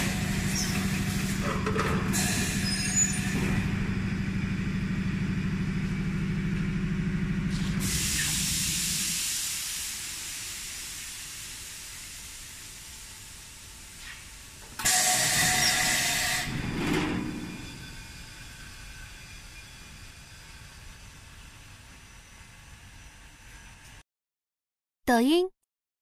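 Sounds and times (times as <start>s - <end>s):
loud blast of air hiss: 7.5s - 12.6s, 14.2s - 16.5s.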